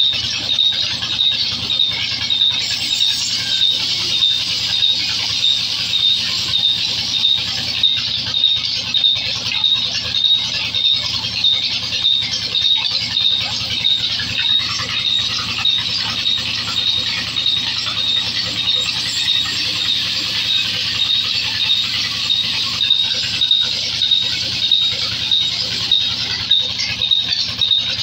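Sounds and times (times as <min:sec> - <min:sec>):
band saw cutting wood: 0:00.0 - 0:08.5
sharp high pulsing tone: 0:00.0 - 0:28.0.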